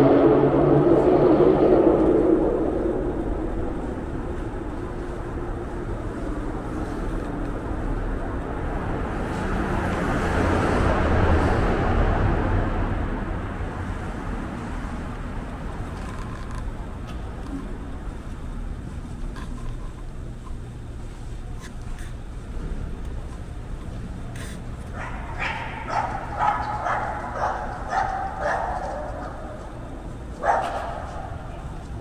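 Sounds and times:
passing vehicles rumble: 0.0 - 32.0.

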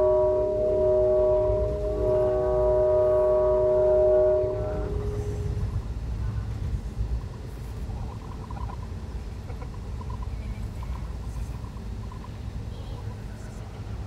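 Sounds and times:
held chord of tones: 0.0 - 5.6
vehicle rumble from inside: 0.0 - 14.0.

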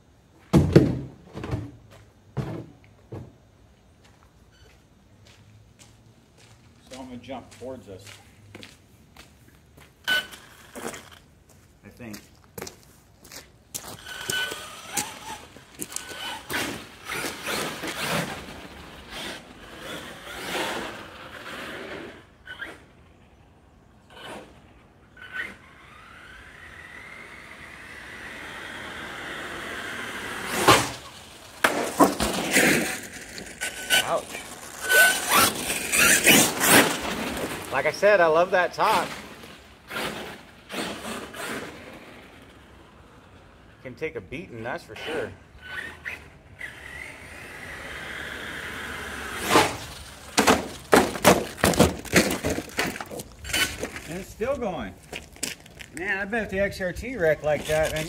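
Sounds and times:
toy truck crashing and tumbling: 0.5 - 3.4, 10.0 - 11.3, 13.8 - 22.9, 25.2 - 43.4, 45.0 - 54.4
electric motor whining: 13.9 - 22.9, 25.2 - 31.4.

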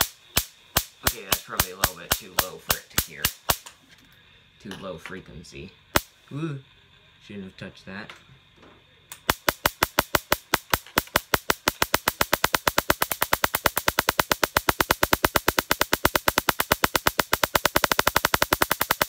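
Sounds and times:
tesla coil spark gap cracking: 0.0 - 3.9, 5.9 - 6.4, 9.1 - 19.0.

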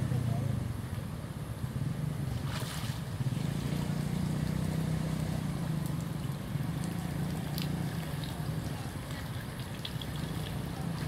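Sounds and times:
water splash: 2.3 - 11.0.

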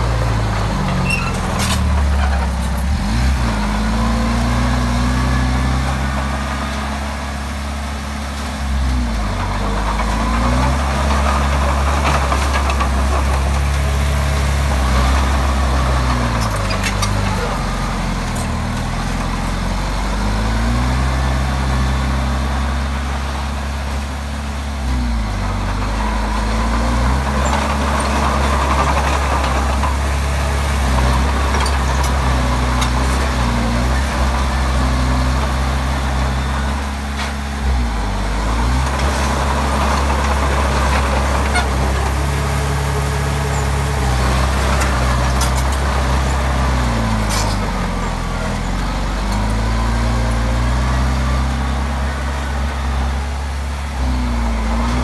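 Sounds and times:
bulldozer diesel engine working: 0.0 - 55.0.

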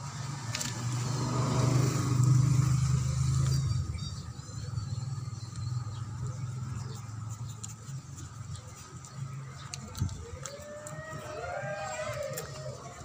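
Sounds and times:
vehicle engine passing by: 0.0 - 7.5.

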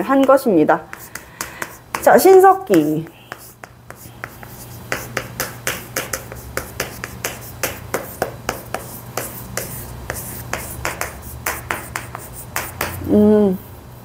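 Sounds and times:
chalk tapping and scratching: 0.0 - 13.1.

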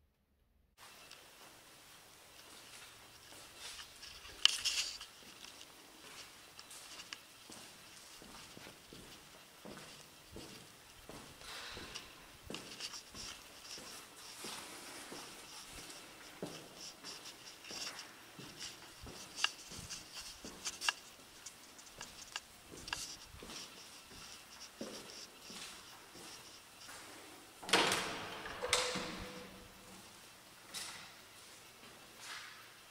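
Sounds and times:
footsteps on hard floor: 3.3 - 27.1.

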